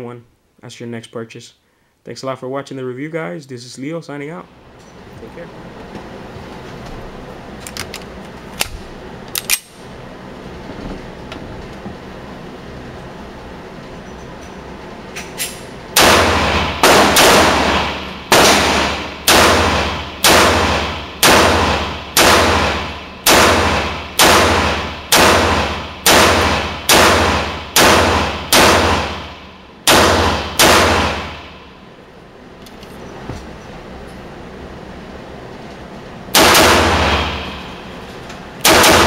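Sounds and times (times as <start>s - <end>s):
pistol shots echoing indoors: 15.5s - 32.0s, 36.3s - 38.0s, 38.6s - 39.0s.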